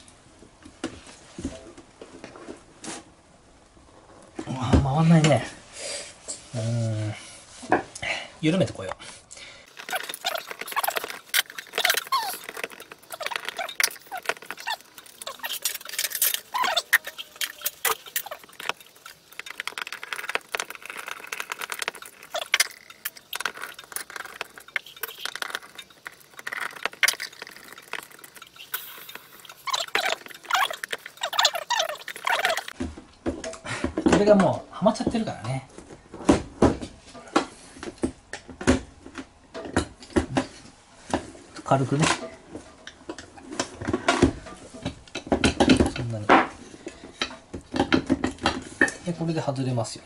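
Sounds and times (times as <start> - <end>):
short squeaks: 9.7 - 32.8.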